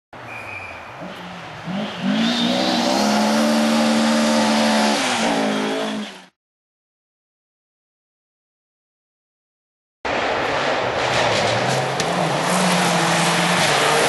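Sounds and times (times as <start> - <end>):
rally car engine at full throttle: 1.0 - 6.4, 10.1 - 14.0.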